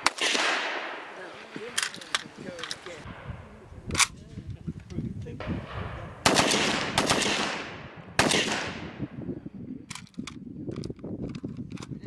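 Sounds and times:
gunshots with long echo: 0.0 - 1.7, 5.5 - 9.2.

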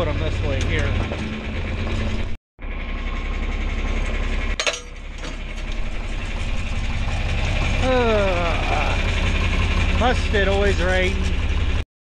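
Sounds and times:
tractor engine clattering: 0.0 - 11.8
sharp metal clank: 4.6 - 5.5.

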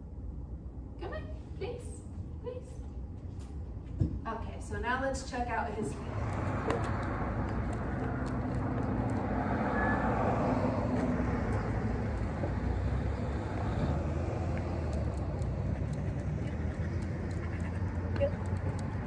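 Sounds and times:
vehicle engine rumble: 5.6 - 19.0.

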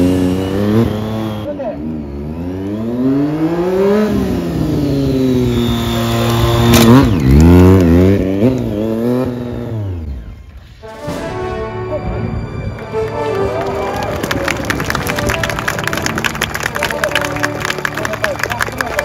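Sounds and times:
motorcycle engine revving: 0.0 - 10.6.

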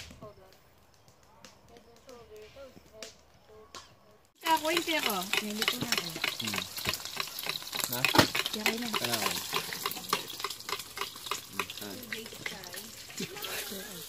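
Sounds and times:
food sizzling: 4.4 - 14.0
spatula scraping a frying pan: 4.4 - 14.0.

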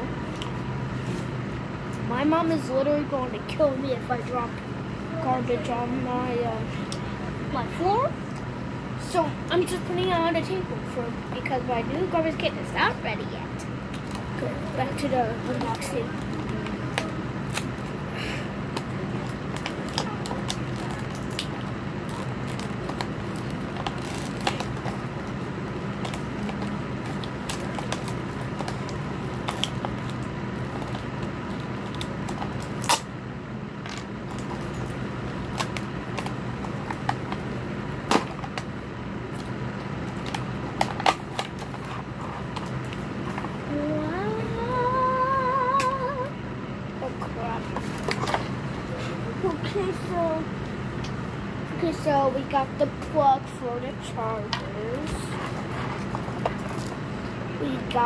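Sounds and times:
steady low hum: 0.0 - 58.0
sharp snaps of packaging: 18.7 - 25.0, 26.0 - 33.1
packaging crinkling and crackling: 18.7 - 33.0, 54.9 - 57.2.

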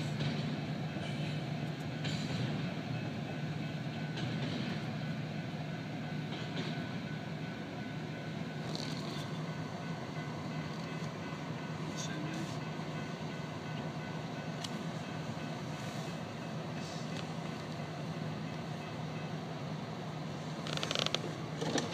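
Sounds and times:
freight train cars rumbling: 0.0 - 21.9
short rail clicks: 14.6 - 14.9.

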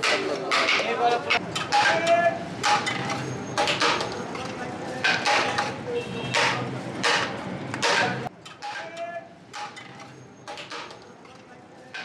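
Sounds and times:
sharp knocks: 5.0 - 8.8.

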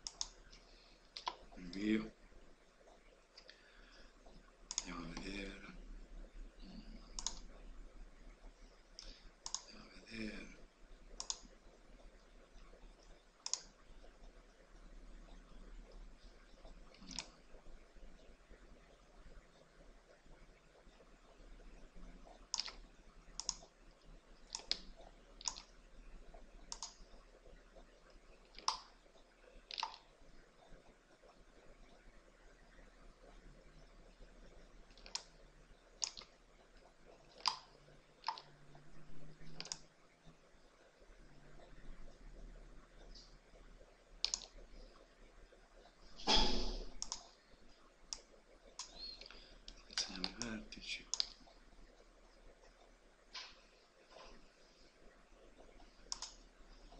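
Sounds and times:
computer mouse clicking: 0.0 - 1.9, 4.3 - 5.5, 7.1 - 7.6, 8.9 - 9.8, 11.1 - 11.8, 12.6 - 14.1, 16.6 - 17.4, 22.2 - 25.8, 26.7 - 29.0, 29.7 - 32.0, 34.9 - 35.4, 36.0 - 36.4, 37.3 - 38.5, 39.5 - 39.9, 44.2 - 45.0, 46.7 - 47.4, 48.1 - 51.6, 55.6 - 56.4.

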